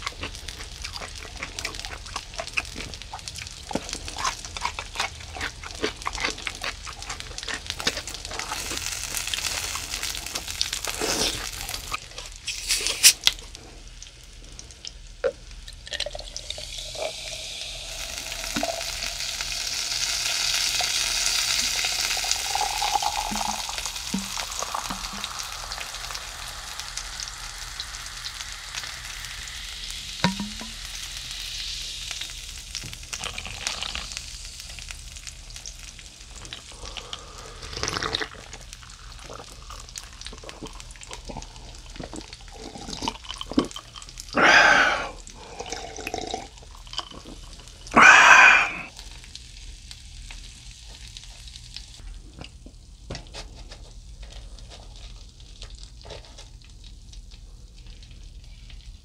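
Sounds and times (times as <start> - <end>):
soda fizzing over ice: 6.8 - 13.5, 15.6 - 49.3.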